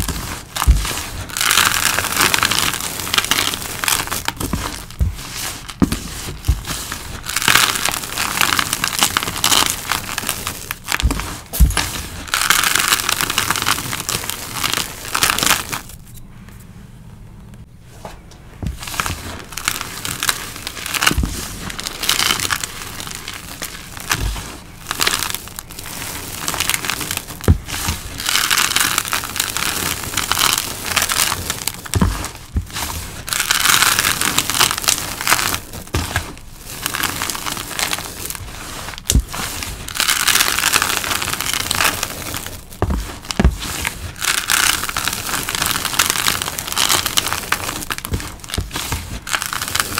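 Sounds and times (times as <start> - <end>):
hands crushing crumbly powder: 0.0 - 16.1, 17.9 - 49.9.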